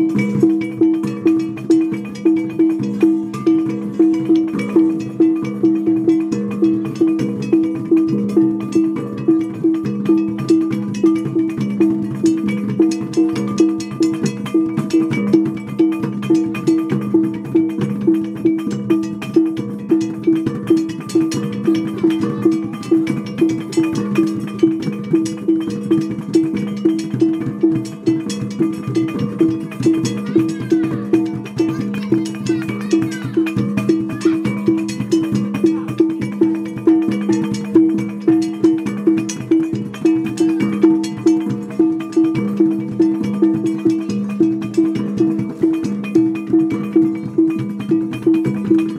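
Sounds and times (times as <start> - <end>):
percussion beat: 0.0 - 48.9.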